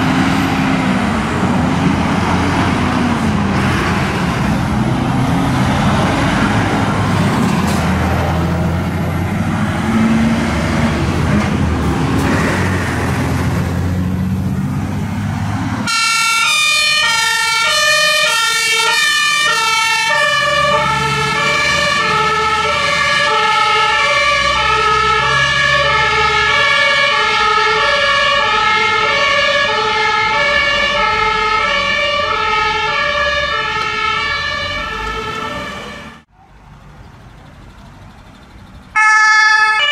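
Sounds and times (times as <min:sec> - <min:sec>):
diesel fire trucks driving past: 0:00.0 - 0:39.9
two-tone siren: 0:15.8 - 0:36.2, 0:38.9 - 0:39.9.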